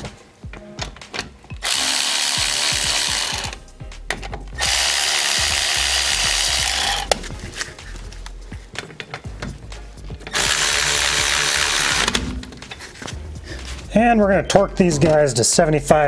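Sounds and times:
cordless ratchet running: 1.6 - 3.6, 4.6 - 7.2, 10.3 - 12.3.

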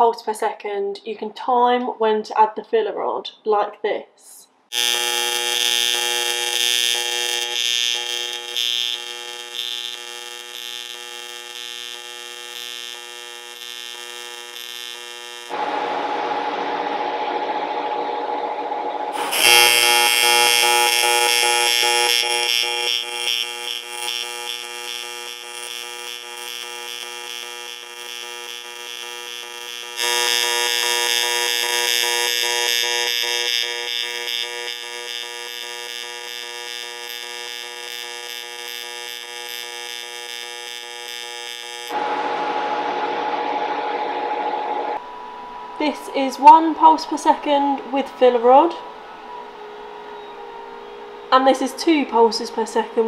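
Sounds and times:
welding arc humming: 4.7 - 45.1.

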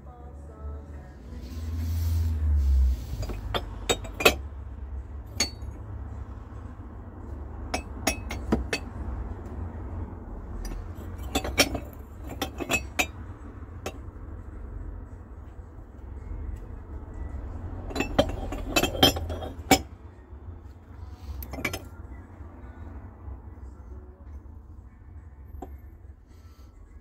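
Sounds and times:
low steady rumble: 0.0 - 27.0
ceramic mugs clinking: 3.2 - 4.4, 5.3 - 5.8, 7.7 - 9.0, 10.6 - 13.2, 17.8 - 19.9, 21.4 - 22.0.

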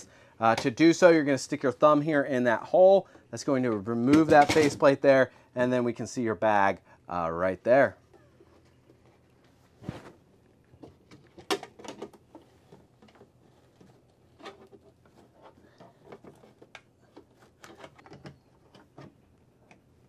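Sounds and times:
plastic parts clicking and knocking: 4.1 - 4.9, 10.7 - 19.9.

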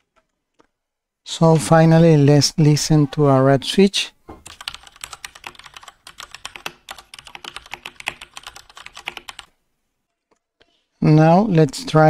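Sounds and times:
rapid keyboard typing clacks: 4.4 - 9.5.

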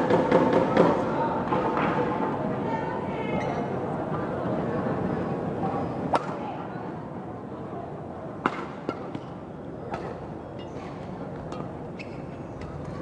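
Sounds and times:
shoes squeaking on court floor: 10.6 - 13.0.

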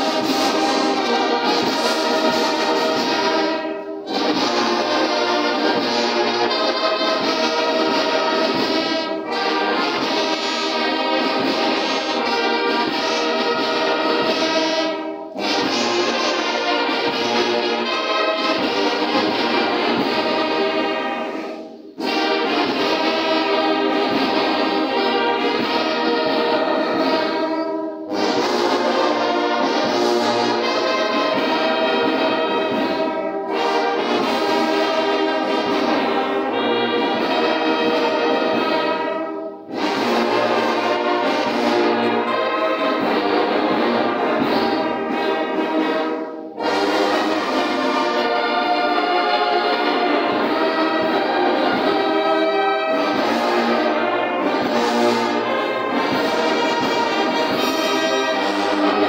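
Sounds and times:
brass band playing a hymn: 0.0 - 59.0.

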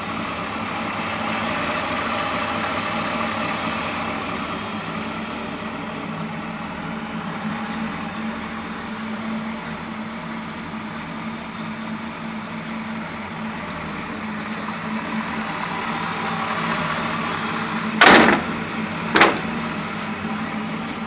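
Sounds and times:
engine idling: 0.0 - 21.0
loud bursts of noise: 15.1 - 20.1.

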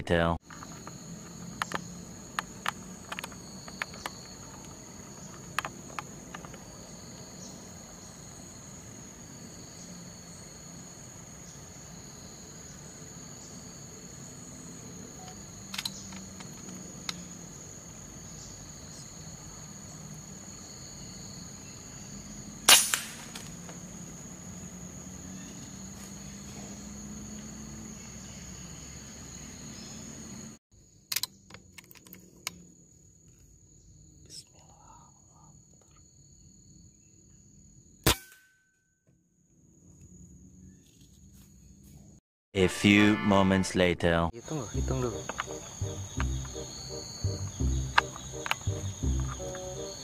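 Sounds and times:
insects droning: 0.1 - 38.1, 39.2 - 42.2, 42.8 - 50.0
air rifle shot: 22.7 - 23.3.

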